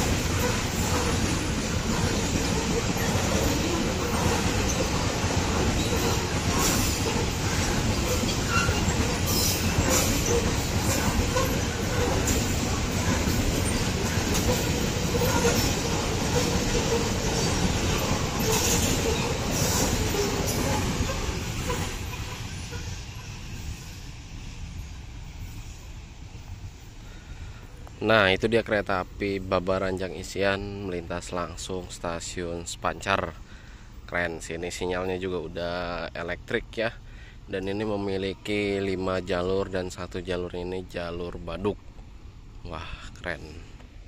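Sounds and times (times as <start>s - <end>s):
clacks over rail joints: 0.0s - 22.8s
high wheel screeches: 0.0s - 24.0s
train wheels rumbling on rail: 0.0s - 42.6s.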